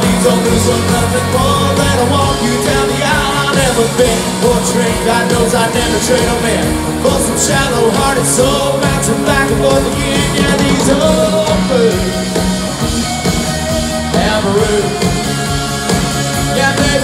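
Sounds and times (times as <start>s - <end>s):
live country band playing: 0.0s - 17.0s.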